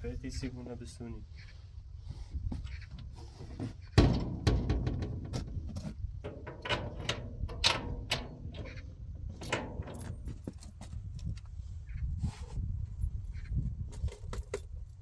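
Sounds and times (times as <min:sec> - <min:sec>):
door latch clicking and rattling: 0:06.3 - 0:08.8.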